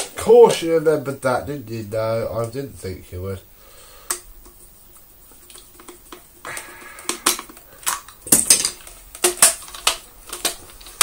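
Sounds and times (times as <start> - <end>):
plastic parts clicking and clattering: 5.4 - 11.0.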